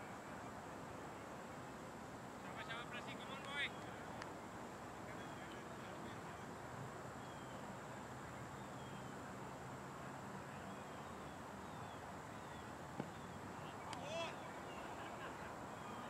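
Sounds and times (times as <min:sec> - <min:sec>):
open-air background noise: 0:00.0 - 0:16.0
bird chirping: 0:10.6 - 0:13.9.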